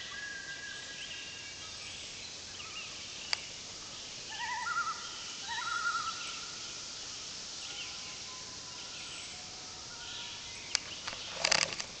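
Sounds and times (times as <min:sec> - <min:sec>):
birds singing: 0:00.0 - 0:11.8
background hiss: 0:00.0 - 0:12.0.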